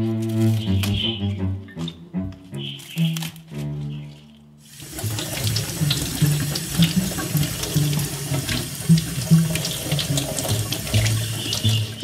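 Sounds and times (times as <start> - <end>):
tap water running into sink: 4.6 - 12.0.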